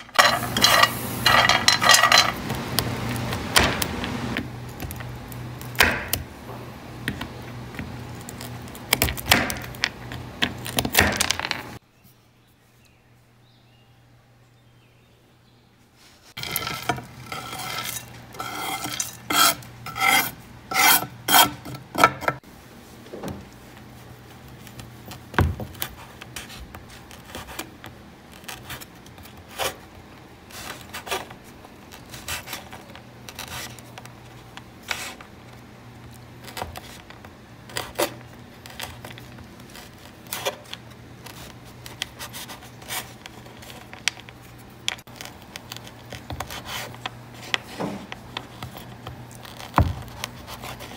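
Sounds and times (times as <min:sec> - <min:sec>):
knife cutting on wooden board: 0:16.4 - 0:22.4.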